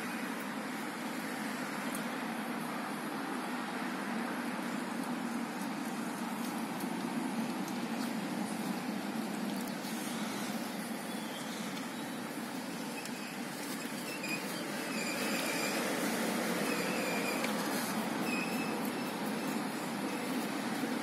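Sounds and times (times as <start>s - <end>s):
heavy lorry approaching: 0.0s - 21.0s
faint high squeal: 11.0s - 12.2s, 12.8s - 15.9s, 16.6s - 19.1s.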